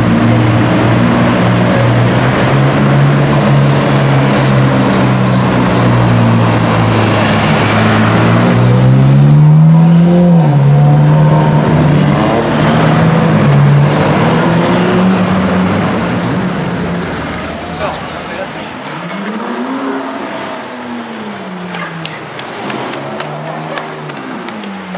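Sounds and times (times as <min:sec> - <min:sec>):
sports car engine accelerating: 0:00.0 - 0:17.6.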